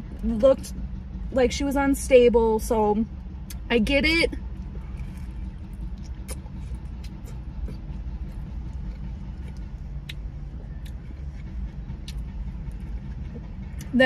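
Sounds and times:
car engine rumbling: 0.0s - 14.0s
faint eating clicks: 4.5s - 12.9s.

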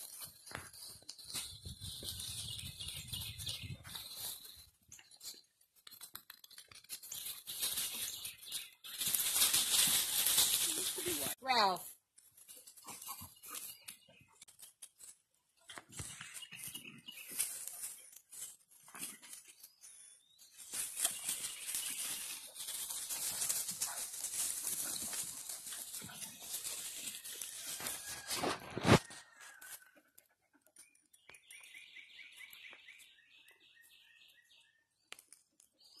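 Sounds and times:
dogs running through dry leaves: 0.0s - 13.8s, 15.8s - 29.9s.

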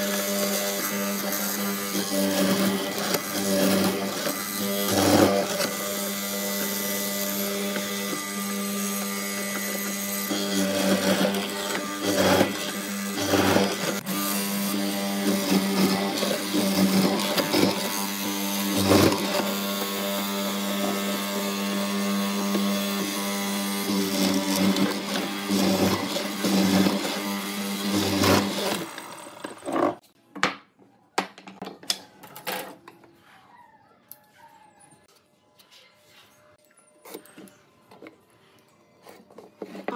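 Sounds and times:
power tool motor running: 0.0s - 30.0s.

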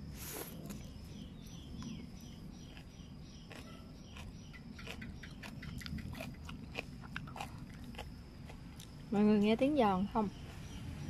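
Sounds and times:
person chewing crunchy vegetables: 0.0s - 9.1s.

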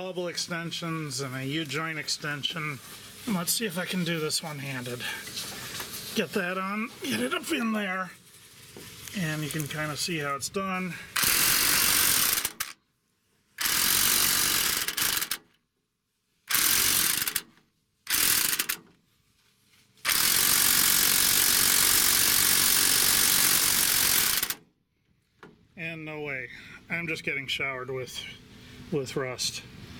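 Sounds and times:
electric impact wrench hammering: 11.1s - 12.8s, 13.6s - 15.5s, 16.5s - 18.9s, 20.0s - 24.6s.

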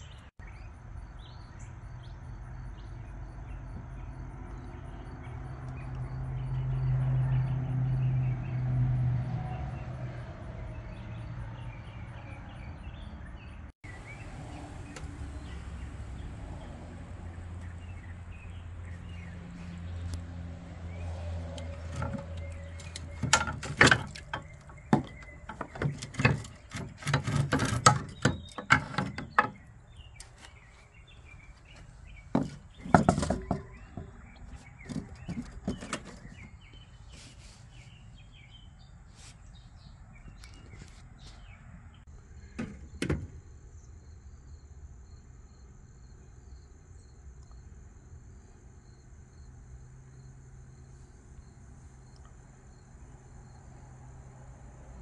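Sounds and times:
sharp knocks and clanks: 21.6s - 29.7s, 32.3s - 36.6s, 42.5s - 43.4s
faint insect trill: 42.2s - 55.0s.

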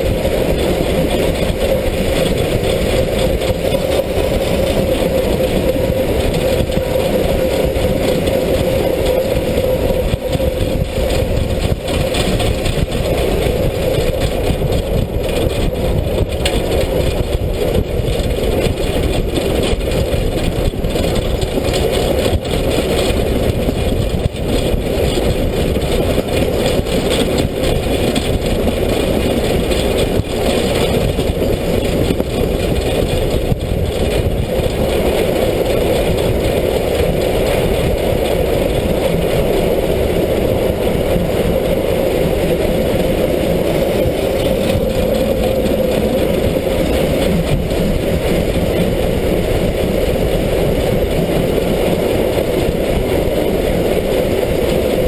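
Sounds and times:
steam locomotive running: 0.0s - 55.0s.

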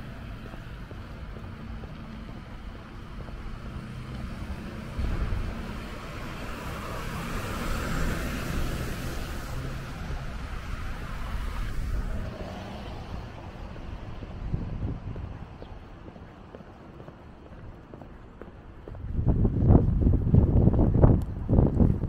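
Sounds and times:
low road rumble: 0.0s - 22.0s
car tyre hiss passing: 3.7s - 14.8s.

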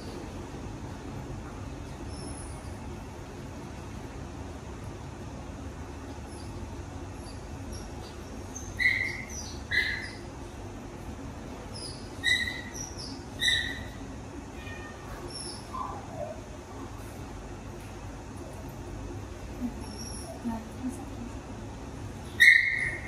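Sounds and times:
low steady hum: 0.0s - 23.0s
baby monkey squeaking: 11.8s - 14.0s.

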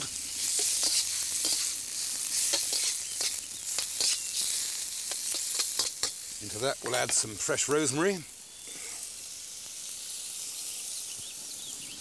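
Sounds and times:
metal utensils scraping a wok: 0.0s - 7.3s
food sizzling in oil: 0.0s - 12.0s.

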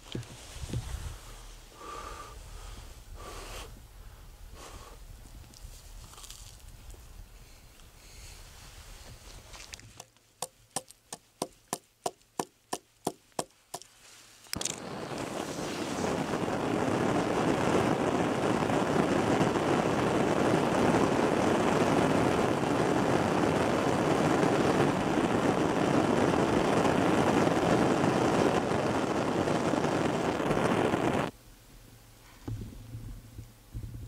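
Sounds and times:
gas flame rushing: 14.5s - 31.3s
faint low knocks: 31.8s - 34.0s.

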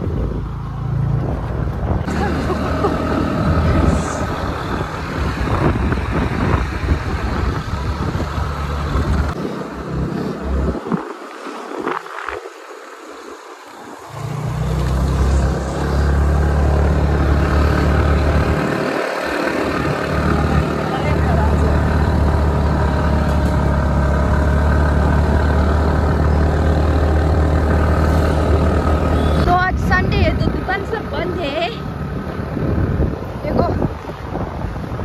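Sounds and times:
wind rushing over microphone: 0.0s - 35.0s
scooter engine running: 16.3s - 32.0s.

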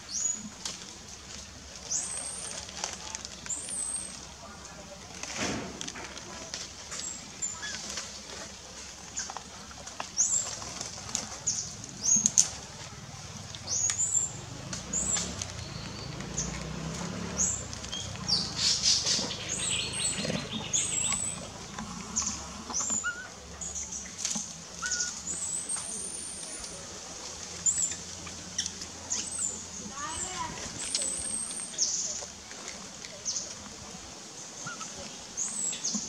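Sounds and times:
rustling and scratching: 0.0s - 36.0s
animal chirping calls: 22.8s - 23.4s, 24.8s - 26.4s.

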